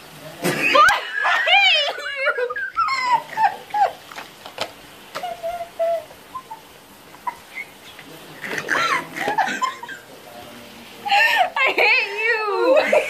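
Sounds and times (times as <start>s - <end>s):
girl whimpering laughter: 0.7s - 4.1s, 5.2s - 7.8s.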